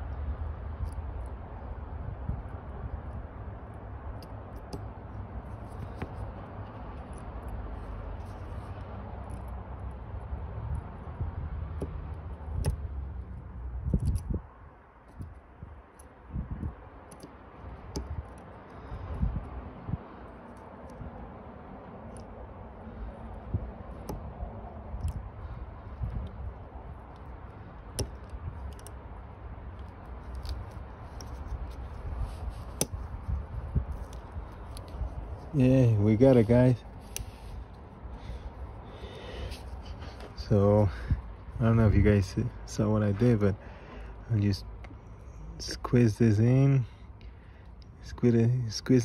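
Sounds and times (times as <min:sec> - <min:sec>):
low background rumble: 0:00.0 - 0:48.7
metallic clicks and scrapes of pliers: 0:04.1 - 0:10.8, 0:12.5 - 0:14.3, 0:27.0 - 0:29.0, 0:29.7 - 0:35.5, 0:36.3 - 0:37.8.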